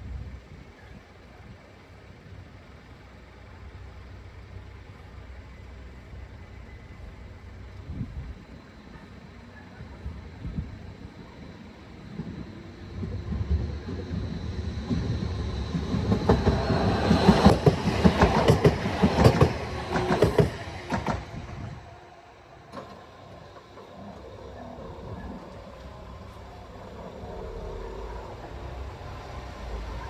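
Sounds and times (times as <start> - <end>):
tram wheels clattering on track: 11.0 - 21.9, 22.6 - 30.0.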